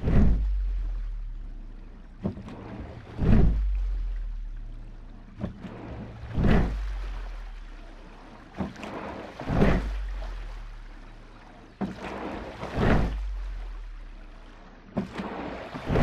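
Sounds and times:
oar knock: 0.0 - 0.7, 2.2 - 4.0, 8.5 - 10.1
rushing whoosh of water: 0.0 - 16.0.

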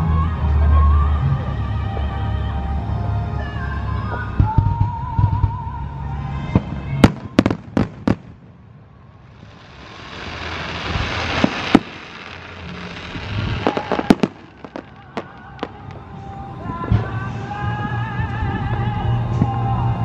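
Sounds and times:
fireworks cracking: 6.5 - 17.2
firework shell hissing: 9.2 - 16.0
firework bang: 9.4 - 15.8.

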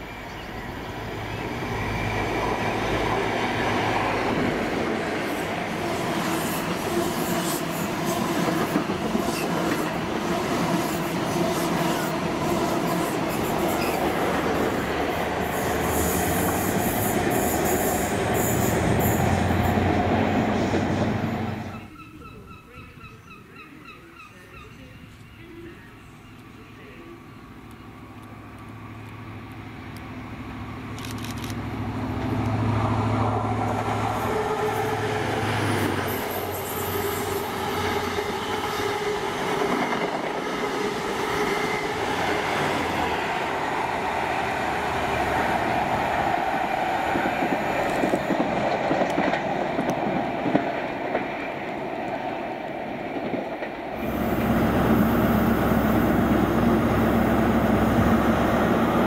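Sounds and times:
diesel train engine: 0.0 - 21.9, 25.0 - 59.0
low hum of standing locomotive: 0.0 - 59.0
coaches clattering on rails: 47.1 - 52.4.

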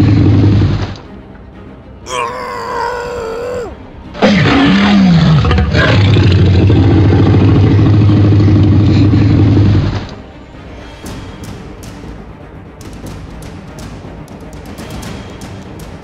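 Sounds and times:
dinosaur roar and growl: 2.1 - 10.1.

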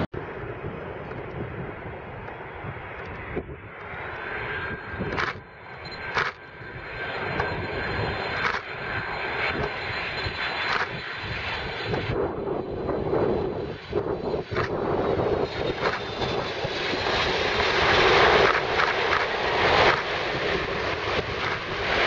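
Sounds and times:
jet engines roaring: 0.0 - 22.0.

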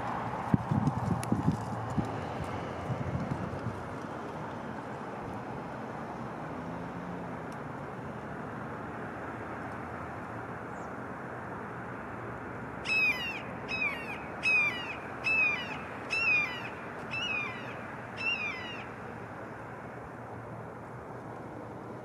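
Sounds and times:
steady background noise: 0.0 - 22.0
hawk squealing cries: 12.8 - 18.9.

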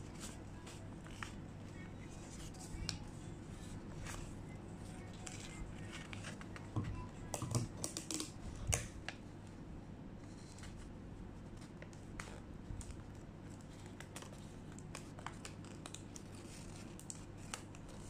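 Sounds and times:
paper rustling and folding: 0.0 - 7.0, 10.3 - 18.0
low steady hum: 0.0 - 18.0.

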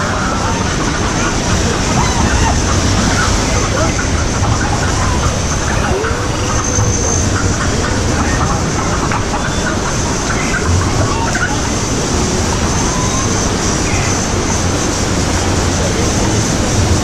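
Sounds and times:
churning white water: 0.0 - 17.0
faint voices: 0.0 - 17.0.

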